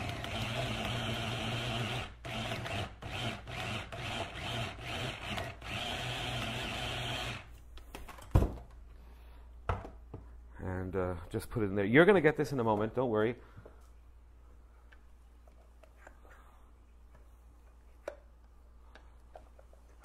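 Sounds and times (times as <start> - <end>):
electric stick blender running: 0.0 - 7.5.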